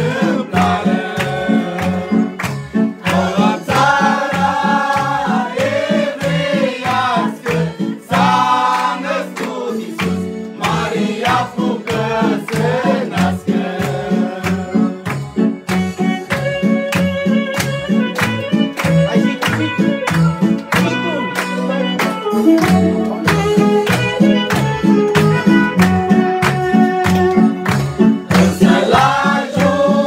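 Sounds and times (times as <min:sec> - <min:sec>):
group singing a carol: 0:00.0 - 0:15.0, 0:28.3 - 0:30.0
instrumental accompaniment with beat: 0:00.0 - 0:30.0.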